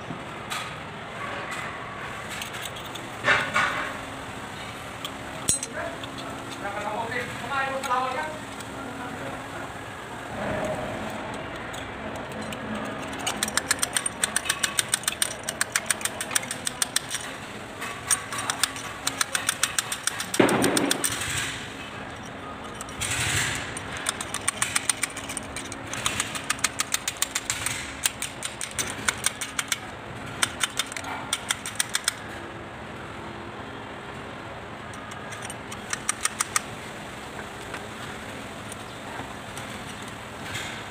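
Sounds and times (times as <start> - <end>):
quick metal clicks: 10.6 - 32.4, 34.9 - 36.8
loud metal knock: 20.3 - 21.5.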